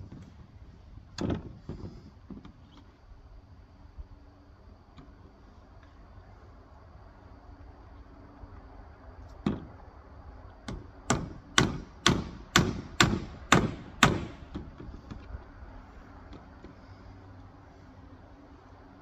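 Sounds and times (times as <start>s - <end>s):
hammer blows on roofing sheet: 10.7s - 15.2s.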